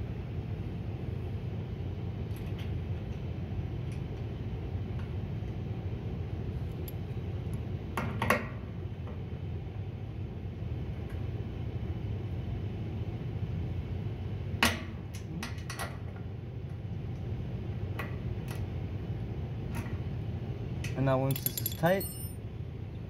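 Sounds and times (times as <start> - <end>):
metal tools clinking: 21.2 - 22.4.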